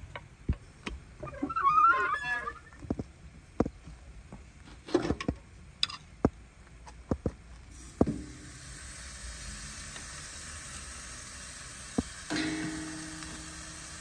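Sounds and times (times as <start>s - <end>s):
steak sizzling on grill: 7.8s - 14.0s
metal tongs clicking on grill grate: 12.3s - 13.9s.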